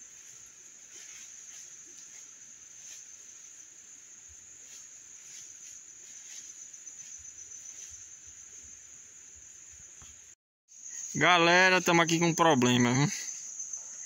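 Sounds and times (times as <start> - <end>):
high-pitched insect drone: 10.7 - 14.0.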